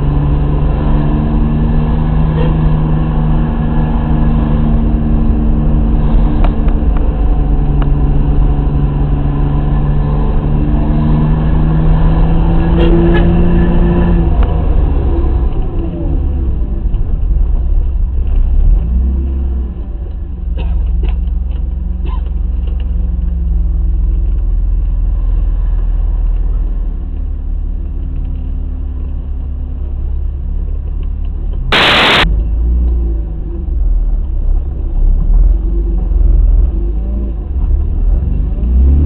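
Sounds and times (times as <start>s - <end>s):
car engine and road noise: 0.0s - 39.0s
sudden loud burst of noise: 31.7s - 32.3s.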